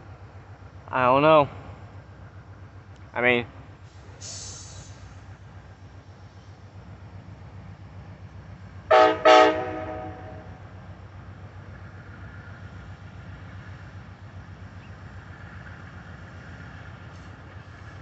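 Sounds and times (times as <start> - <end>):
low rumble of train: 0.0 - 18.0
train horn blasts: 8.9 - 10.6.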